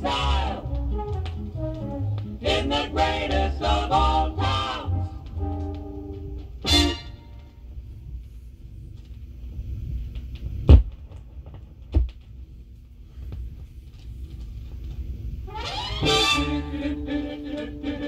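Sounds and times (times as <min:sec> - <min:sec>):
record surface ticks: 0:00.0 - 0:12.3
loud record pops: 0:00.0 - 0:18.0
turntable low rumble: 0:00.0 - 0:18.0.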